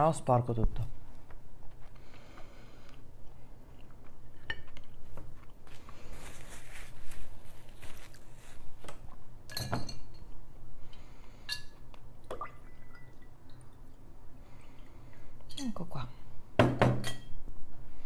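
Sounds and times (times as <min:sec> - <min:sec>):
soft rustling: 0:00.8 - 0:09.2
tableware clinking: 0:09.5 - 0:10.3, 0:16.8 - 0:17.4.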